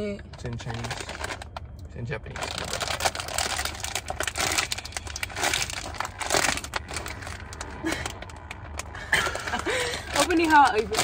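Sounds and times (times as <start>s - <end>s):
chip bag crinkling: 0.4s - 9.0s.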